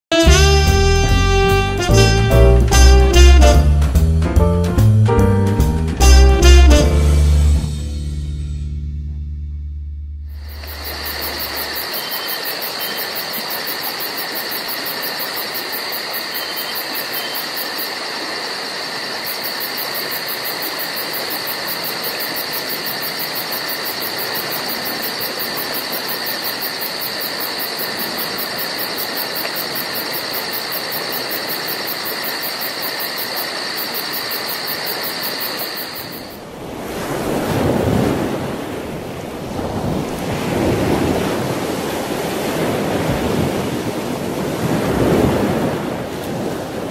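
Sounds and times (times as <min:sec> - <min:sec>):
water noise: 0:10.3 - 0:46.9
gusty wind: 0:36.1 - 0:46.9.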